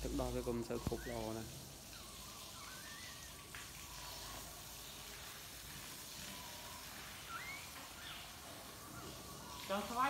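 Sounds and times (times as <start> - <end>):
puppies squeaking: 0.5 - 4.5, 6.5 - 9.8.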